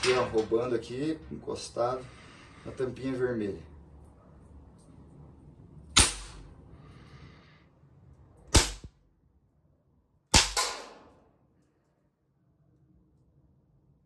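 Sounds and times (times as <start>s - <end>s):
air pistol pops: 6.0s - 6.4s, 8.5s - 8.9s, 10.3s - 11.0s.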